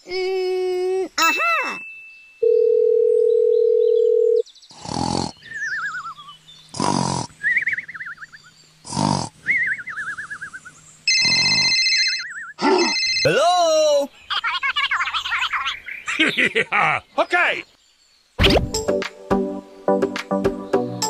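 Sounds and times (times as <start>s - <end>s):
cartoon snore with falling whistle: 6.8s - 7.8s.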